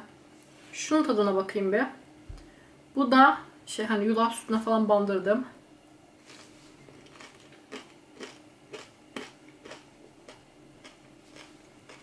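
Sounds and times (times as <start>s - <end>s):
crunchy chewing: 6.2s - 12.0s.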